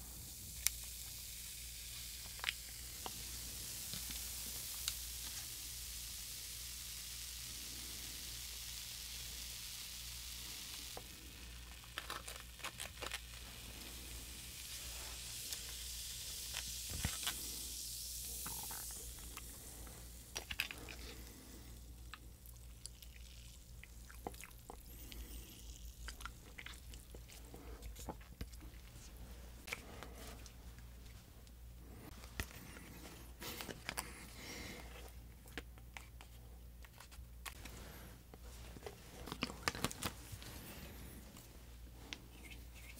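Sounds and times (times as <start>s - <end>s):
fizzing drink hiss: 0.0s - 30.4s.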